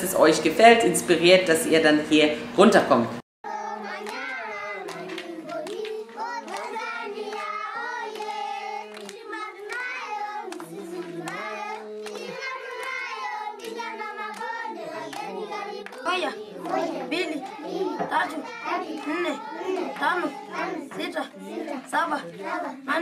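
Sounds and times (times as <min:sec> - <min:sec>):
children singing together: 0:03.5 - 0:23.0
hand claps: 0:03.9 - 0:21.2.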